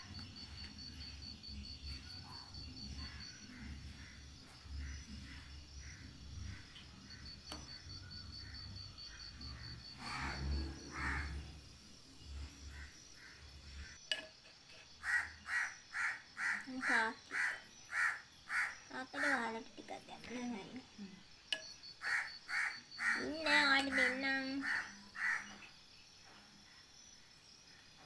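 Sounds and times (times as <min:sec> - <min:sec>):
insect chirping trill: 0:00.0 - 0:28.0
bird calls: 0:21.6 - 0:25.8.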